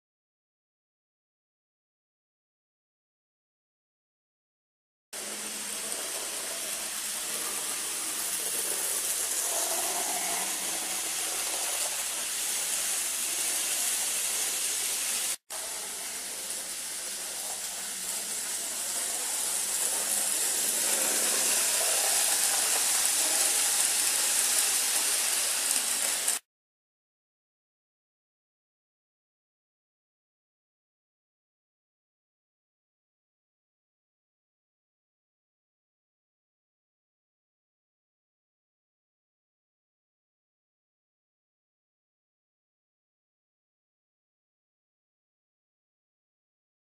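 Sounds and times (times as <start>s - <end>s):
model train running on track: 5.2s - 26.4s.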